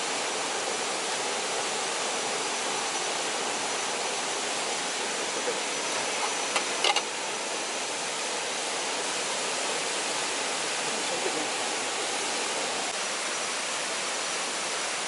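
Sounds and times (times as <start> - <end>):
river flowing over rocks: 0.0 - 15.0
waterfall rushing: 0.0 - 15.0.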